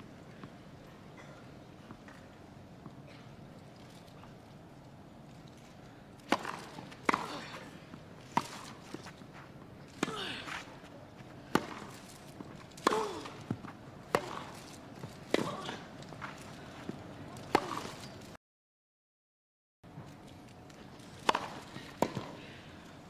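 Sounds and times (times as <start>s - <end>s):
tennis ball hit by racket: 6.3s - 7.6s, 11.5s - 12.0s, 12.8s - 14.6s, 17.5s - 18.1s, 21.2s - 22.4s.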